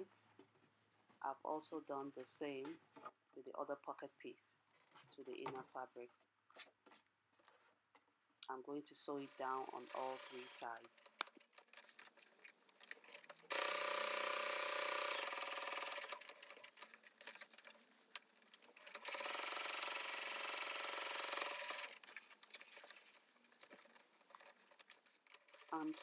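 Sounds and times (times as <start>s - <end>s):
sewing machine stitching: 9.2s - 26.0s.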